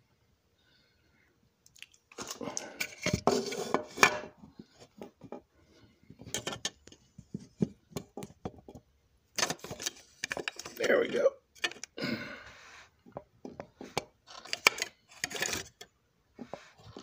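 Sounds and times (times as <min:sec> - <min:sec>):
small hard parts clattering: 0:02.2 - 0:12.0, 0:13.0 - 0:17.0.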